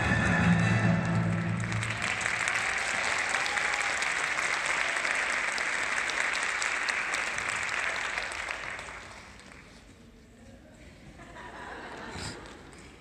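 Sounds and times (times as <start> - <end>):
audience applauding: 1.0 - 9.9.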